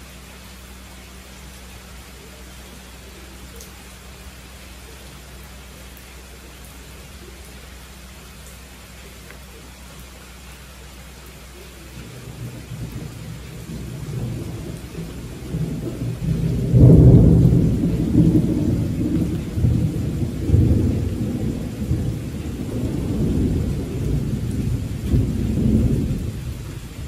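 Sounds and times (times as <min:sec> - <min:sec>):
steady rainfall: 0:00.0 - 0:27.0
rolling thunder: 0:12.1 - 0:27.0.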